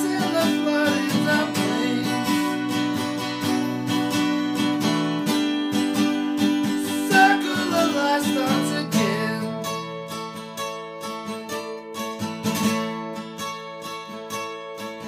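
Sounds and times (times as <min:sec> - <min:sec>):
man singing: 0:00.0 - 0:03.2, 0:06.7 - 0:09.9
acoustic guitars strummed: 0:00.0 - 0:15.0.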